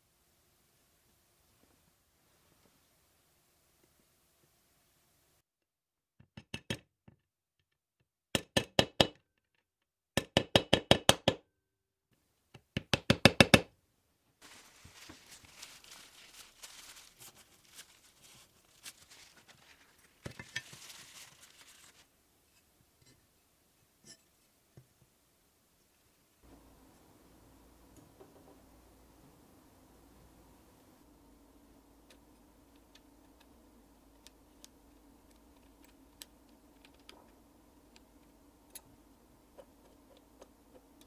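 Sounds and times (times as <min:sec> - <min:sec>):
paper towel rubbing metal: 0:14.4 - 0:22.1.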